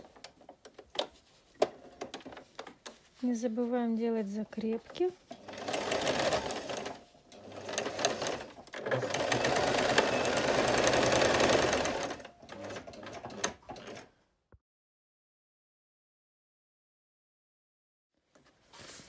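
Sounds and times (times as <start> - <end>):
sewing machine clicks: 5.3 - 14.1
sewing machine stitching: 5.3 - 14.1.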